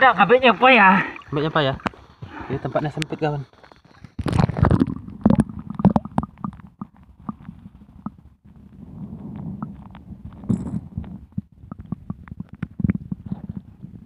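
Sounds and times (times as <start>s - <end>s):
low underwater gurgling rumble: 0.0s - 14.0s
underwater clicks and knocks: 3.9s - 8.3s, 9.6s - 13.7s.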